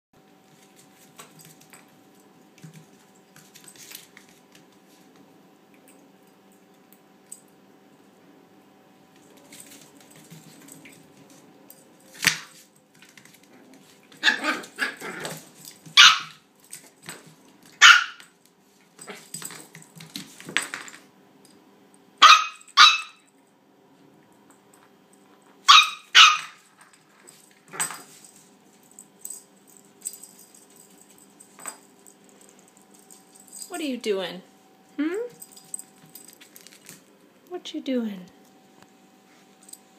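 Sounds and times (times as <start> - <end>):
puppy barking: 16.0 - 16.4, 17.8 - 18.3, 22.2 - 23.3, 25.7 - 26.6.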